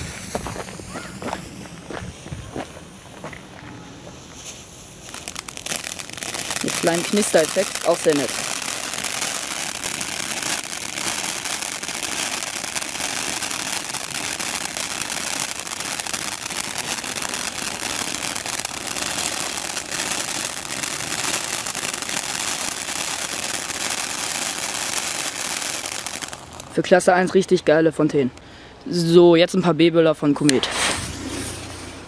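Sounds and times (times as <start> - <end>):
ground fountain hissing sparks: 4.9 - 26.6.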